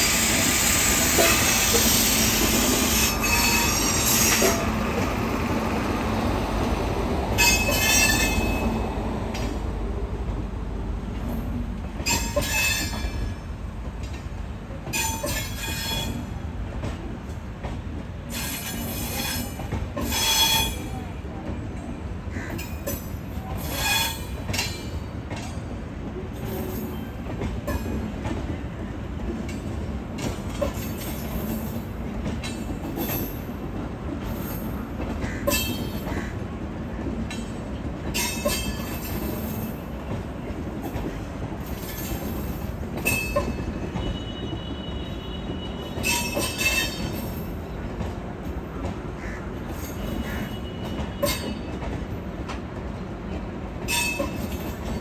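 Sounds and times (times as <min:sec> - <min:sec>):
train rumbling on rails: 0:00.0 - 0:55.0
high-pitched wheel squeals: 0:00.1 - 0:04.6, 0:43.1 - 0:47.3, 0:53.9 - 0:54.5.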